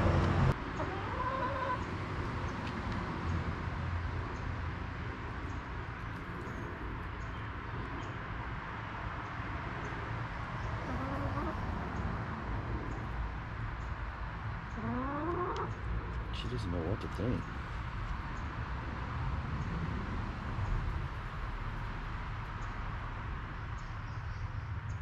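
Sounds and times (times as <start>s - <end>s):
hens clucking softly: 0.8s - 1.9s, 10.8s - 11.6s, 14.7s - 15.8s.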